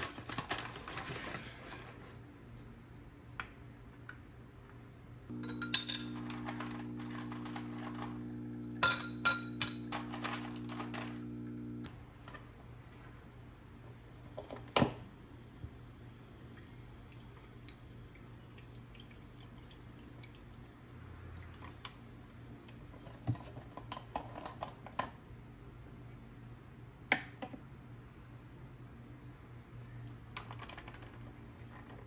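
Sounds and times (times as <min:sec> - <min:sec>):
glass clinking: 0:05.3 - 0:06.4, 0:08.7 - 0:09.9.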